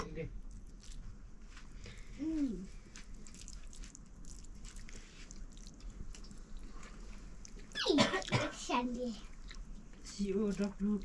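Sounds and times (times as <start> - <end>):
chewing: 0.5 - 1.0, 2.8 - 8.3, 9.2 - 11.0
small clicks of eating: 2.9 - 8.3, 9.1 - 11.0.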